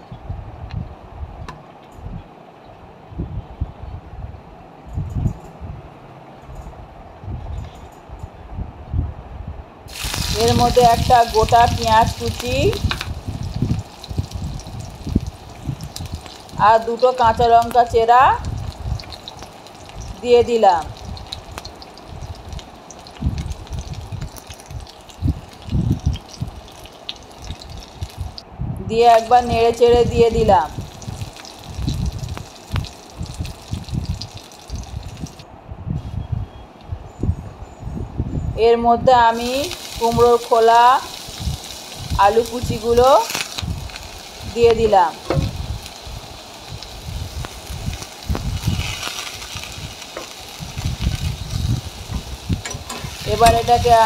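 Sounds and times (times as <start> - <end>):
onions sizzling in hot oil: 9.9 - 28.4, 29.0 - 35.4, 39.2 - 54.0
low thumps: 44.7 - 45.8
dull low thuds: 45.3 - 45.8.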